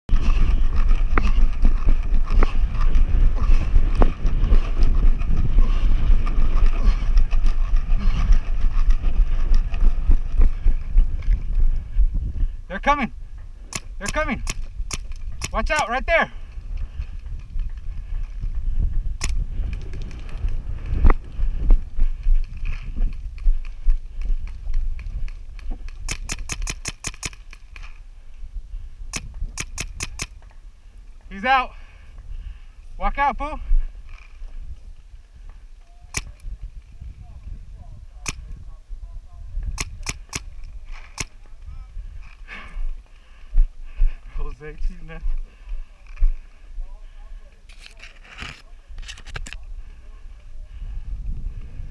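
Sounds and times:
handling rumble: 0.1 - 14.0
wind buffeting microphone: 0.1 - 47.7, 48.5 - 51.9
paintball marker shots: 13.7 - 15.9, 25.9 - 27.6, 29.1 - 30.4, 36.1 - 36.4, 39.7 - 41.4
sharp clicks and knocks: 13.7 - 15.9, 24.4 - 27.9, 29.1 - 30.6.

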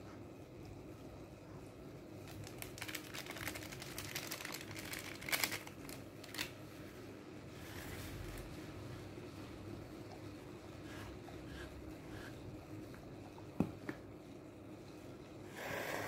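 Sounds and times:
plastic sachet crinkling: 2.2 - 6.6.

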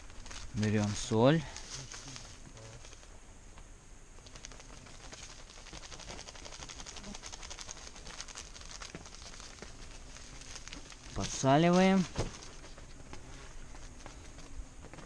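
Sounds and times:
salt packet crinkling: 0.0 - 3.1, 4.2 - 13.0.

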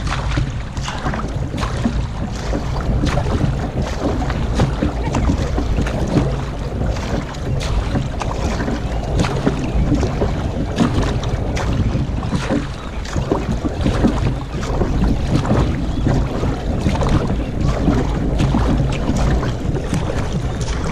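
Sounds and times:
paddles splashing into water: 0.0 - 20.9
water rushing along hull: 0.0 - 20.9
wind rumble on microphone: 0.0 - 20.9.

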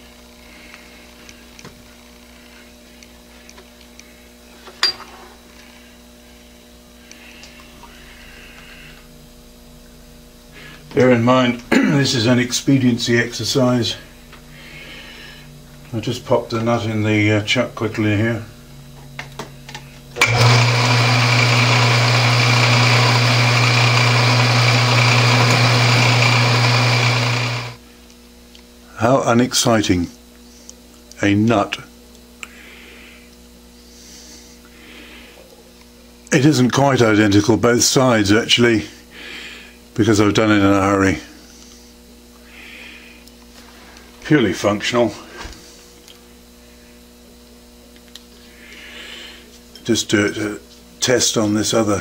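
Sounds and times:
electrical hum: 0.0 - 52.0
lathe humming and whirring: 20.2 - 27.8.

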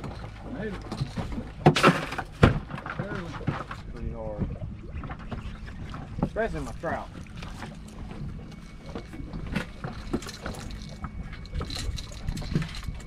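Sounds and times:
boat engine hum and rumble: 0.0 - 13.0.

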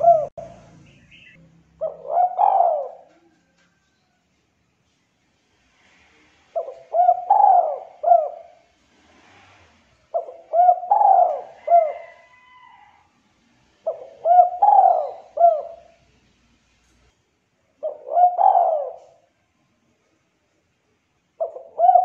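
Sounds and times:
dove cooing: 0.0 - 3.5, 6.5 - 9.0, 10.1 - 12.7, 13.8 - 16.0, 17.8 - 19.3, 21.4 - 22.0.

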